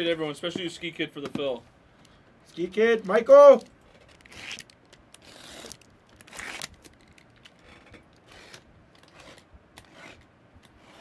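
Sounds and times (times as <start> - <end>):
shrink wrap scraping and tearing: 3.9 - 11.0.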